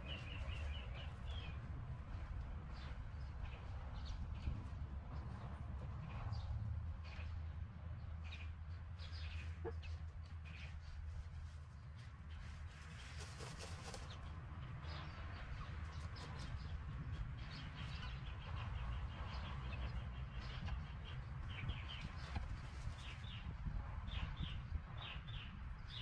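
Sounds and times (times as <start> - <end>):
chickens clucking and chirping: 0.0 - 3.4, 8.6 - 10.8, 12.3 - 23.5.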